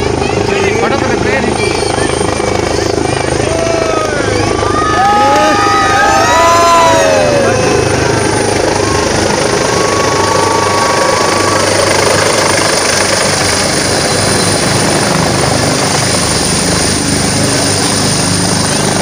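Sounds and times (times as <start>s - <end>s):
helicopter rotor and engine noise: 0.0s - 19.0s.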